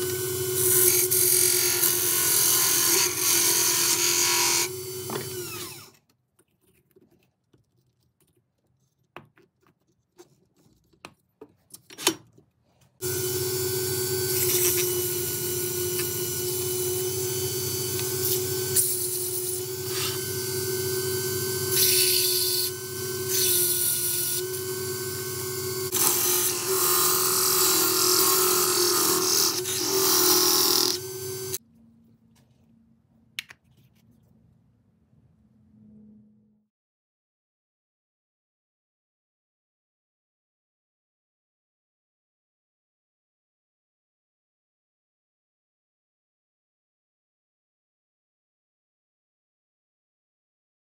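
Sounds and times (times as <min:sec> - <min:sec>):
turning tool cutting wood: 0:00.0 - 0:06.0, 0:13.0 - 0:31.6
wood lathe humming: 0:13.0 - 0:31.6.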